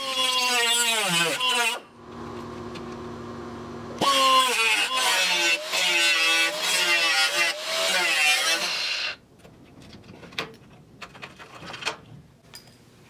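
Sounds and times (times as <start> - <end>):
angle grinder cutting sheet steel: 0.0 - 1.9, 4.0 - 9.2.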